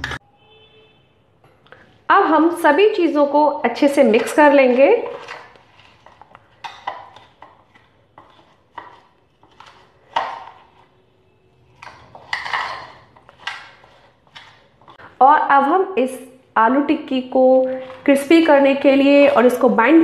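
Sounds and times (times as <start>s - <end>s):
metal spoon scraping a bowl: 3.8s - 15.0s, 17.8s - 19.8s.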